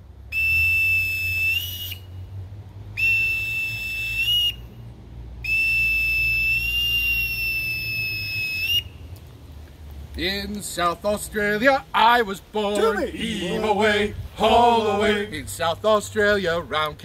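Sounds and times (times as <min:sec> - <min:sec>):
boatswain's pipe high notes: 0:12.7 - 0:15.4.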